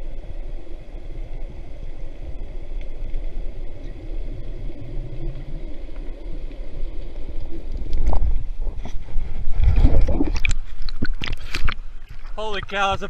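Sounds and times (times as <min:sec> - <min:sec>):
underwater river rumble: 0:00.0 - 0:13.0
faint ticks: 0:02.5 - 0:08.3.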